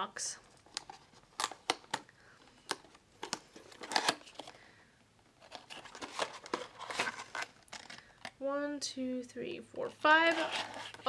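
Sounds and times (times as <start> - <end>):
paper box and packets crinkling: 2.6 - 4.6, 5.4 - 8.4, 10.2 - 11.0.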